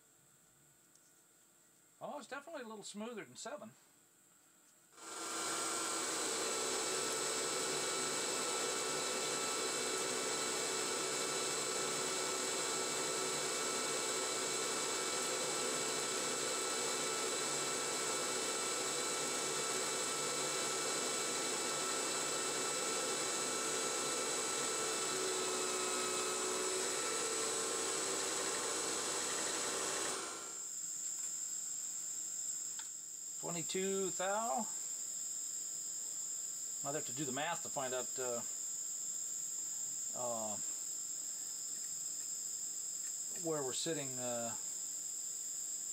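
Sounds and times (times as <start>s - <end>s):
metal lathe cutting: 5.0s - 30.5s
lathe spindle whine: 5.0s - 30.6s.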